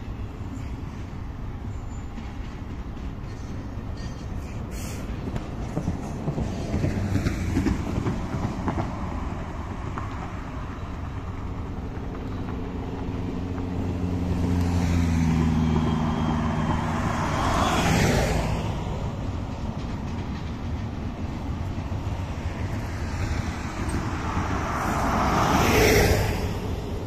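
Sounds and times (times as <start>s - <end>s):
freight train rumbling: 0.0s - 27.0s
road vehicles passing: 0.0s - 27.0s
engine hum: 4.6s - 27.0s
car passing close by: 13.2s - 19.5s, 22.2s - 27.0s.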